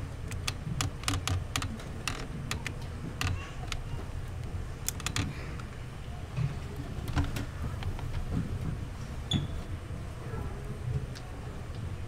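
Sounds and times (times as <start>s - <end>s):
sharp clicks and light knocks: 0.0s - 5.8s, 6.4s - 8.8s
low room rumble: 0.0s - 12.0s.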